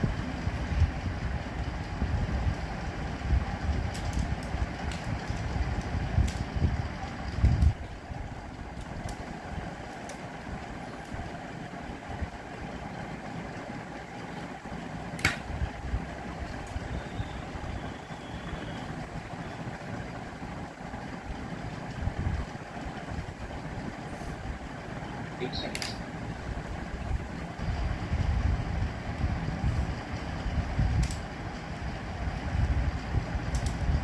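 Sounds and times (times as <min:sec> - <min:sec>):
room hum: 0:00.0 - 0:34.0
laptop keys: 0:33.5 - 0:33.8.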